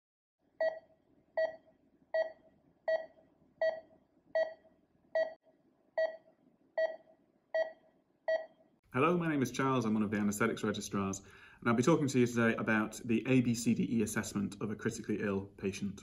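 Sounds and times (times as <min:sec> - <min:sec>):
patient monitor pulse beeps: 0:00.6 - 0:05.4, 0:06.0 - 0:08.6.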